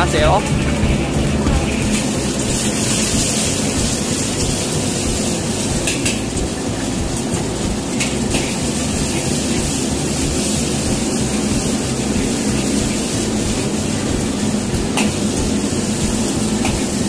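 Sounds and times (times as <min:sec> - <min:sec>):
food sizzling in wok: 0:00.0 - 0:17.0
gas burner roaring: 0:00.0 - 0:17.0.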